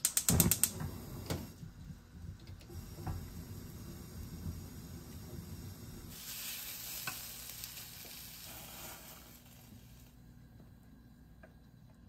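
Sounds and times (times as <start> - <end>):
tomatoes sizzling in frying pan: 2.8 - 10.2.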